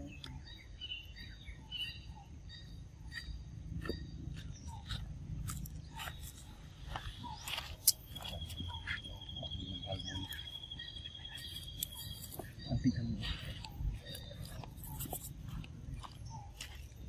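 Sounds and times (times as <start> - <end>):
close clicks and crackles: 4.8 - 9.0.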